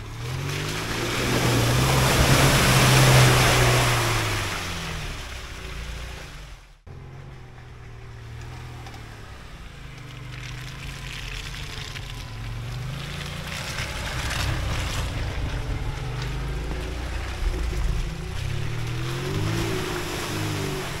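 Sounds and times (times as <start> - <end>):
car engine running under load: 0.0 - 21.0
tyres hissing through slush: 0.2 - 5.4.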